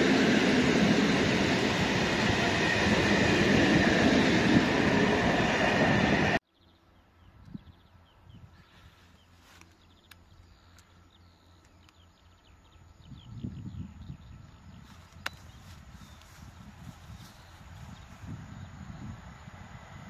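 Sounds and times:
train wheels rumbling on rail: 0:00.0 - 0:06.4.

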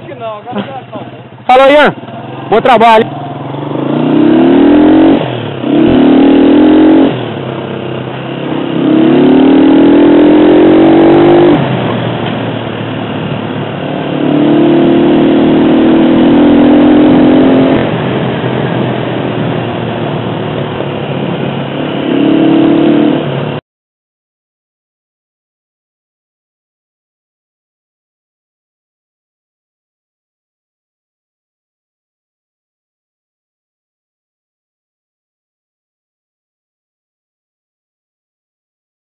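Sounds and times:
motorcycle engine accelerating: 0:00.0 - 0:23.6.

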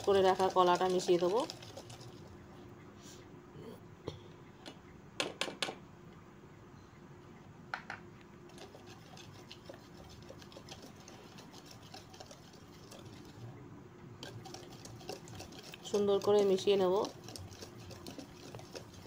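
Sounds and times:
whisk clicking and scraping: 0:00.0 - 0:02.4, 0:08.5 - 0:13.6, 0:14.2 - 0:19.0
whisk knocking on steel bowl: 0:14.2 - 0:19.0.

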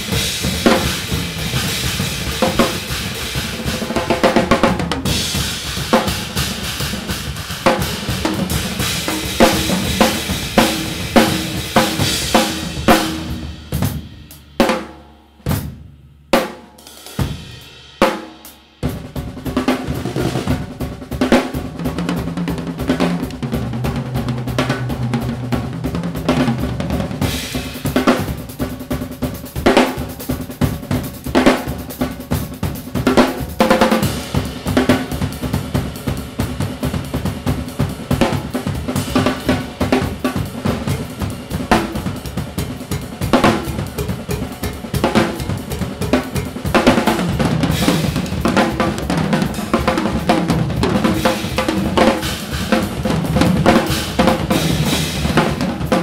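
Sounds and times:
drum kits playing: 0:00.0 - 0:56.0
pitched tom strokes: 0:07.6 - 0:15.5.

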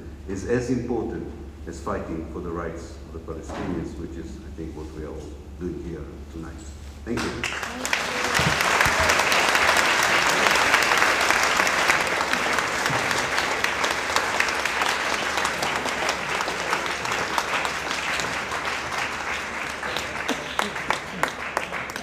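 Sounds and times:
audience applauding: 0:07.2 - 0:22.0.

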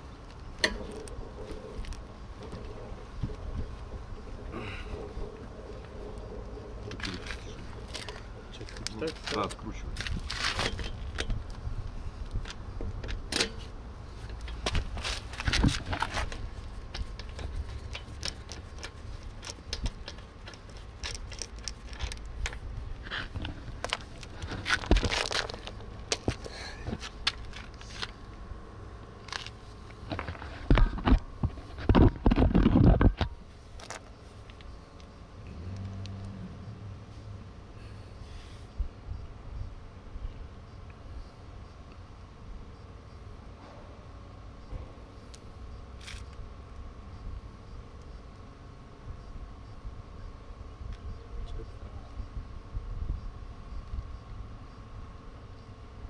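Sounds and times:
wheel wrench clinking and scraping: 0:06.9 - 0:11.6, 0:12.4 - 0:28.2, 0:33.7 - 0:34.1.

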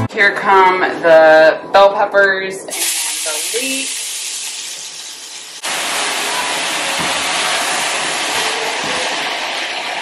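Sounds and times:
vegetables sizzling in hot oil: 0:02.7 - 0:10.0.

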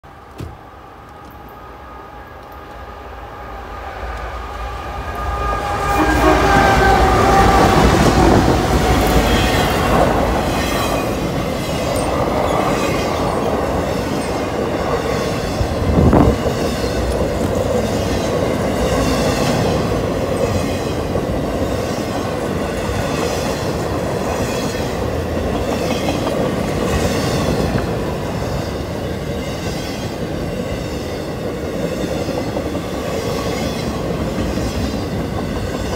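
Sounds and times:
diesel locomotives passing: 0:00.1 - 0:35.9
train horn: 0:04.4 - 0:10.5.

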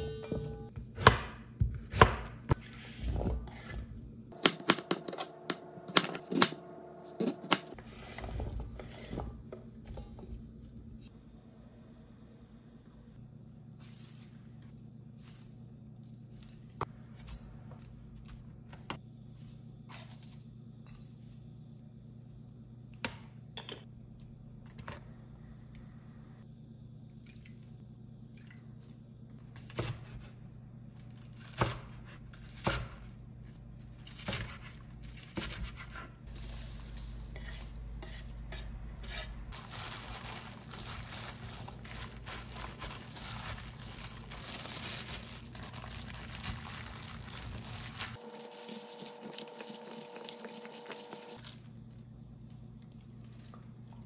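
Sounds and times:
low steady hum: 0:00.0 - 0:54.0
rustling and crinkling: 0:39.5 - 0:54.0.

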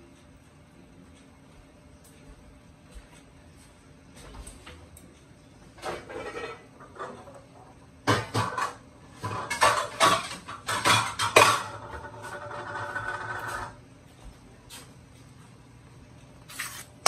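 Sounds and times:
dishes and cutlery clattering: 0:05.8 - 0:07.4, 0:08.0 - 0:13.2.

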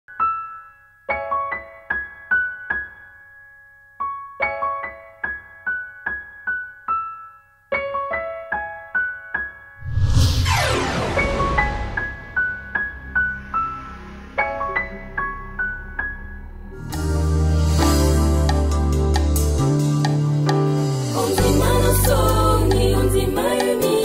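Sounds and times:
piano-like keyboard music: 0:00.1 - 0:09.8, 0:12.4 - 0:24.0
loud rushing swell: 0:09.8 - 0:14.6.

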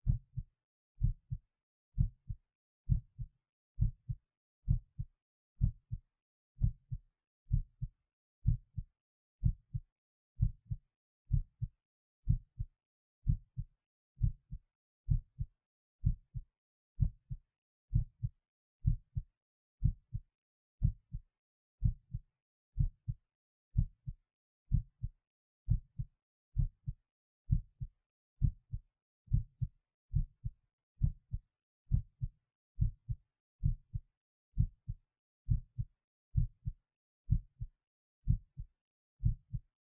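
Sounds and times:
heartbeat lub-dub: 0:00.0 - 0:00.4, 0:23.8 - 0:25.1, 0:25.7 - 0:34.0.

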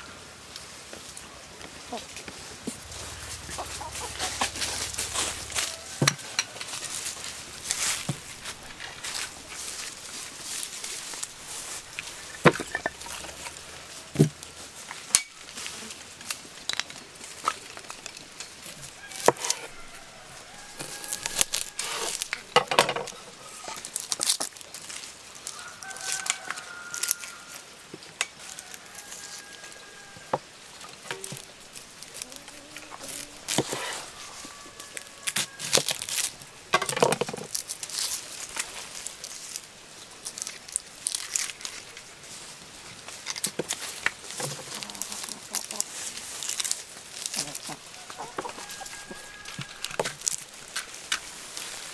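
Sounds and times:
hens clucking: 0:01.6 - 0:14.6, 0:31.1 - 0:36.6, 0:44.4 - 0:46.4, 0:47.2 - 0:50.7
onion skins crinkling and tearing: 0:02.3 - 0:51.9.

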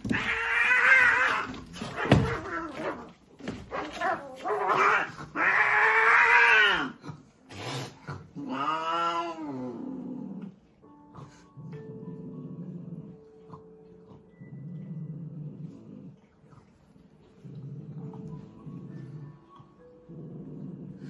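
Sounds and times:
cats yowling and growling: 0:00.0 - 0:10.5.

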